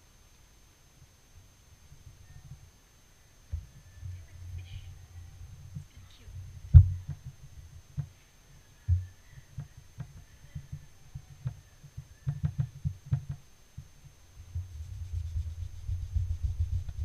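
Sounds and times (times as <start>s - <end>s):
brush dabbing thumps: 14.6s - 17.0s.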